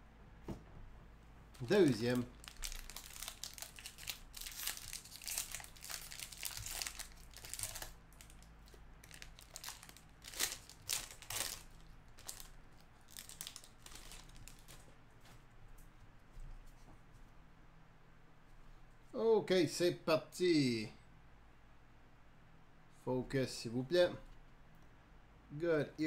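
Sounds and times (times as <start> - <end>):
wrapper tearing and crinkling: 1.6 - 14.8.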